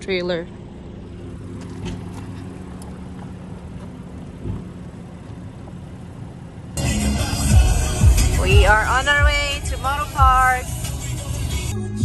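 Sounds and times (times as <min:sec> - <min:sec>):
truck engine idling: 0:00.0 - 0:12.0
dull thump: 0:04.3 - 0:04.9.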